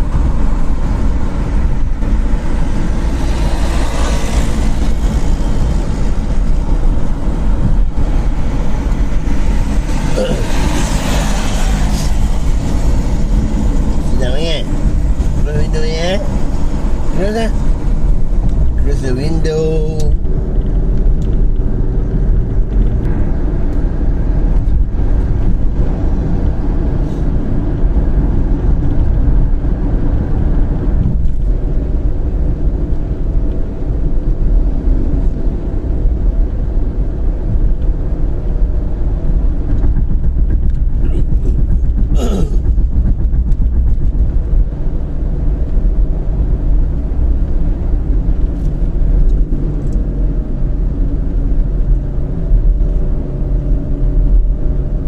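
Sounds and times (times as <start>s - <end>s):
car road and engine rumble: 0.0s - 55.0s.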